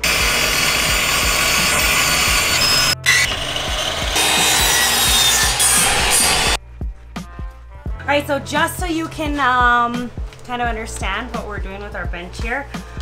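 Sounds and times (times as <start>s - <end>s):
miter saw cutting: 0.0s - 6.6s
table saw cutting wood: 0.0s - 6.6s.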